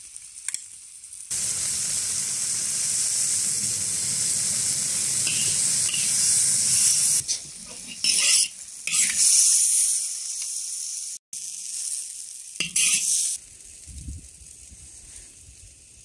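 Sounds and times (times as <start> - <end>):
hot oil sizzling in a wok: 0.0 - 16.0
metal spatula scraping: 5.2 - 9.4, 12.6 - 13.4.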